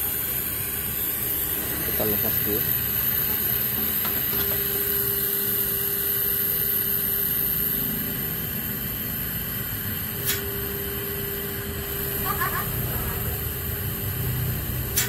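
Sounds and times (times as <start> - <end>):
air conditioner whirring: 0.0 - 15.0
steady hum: 0.0 - 15.0
sharp click: 10.2 - 10.5.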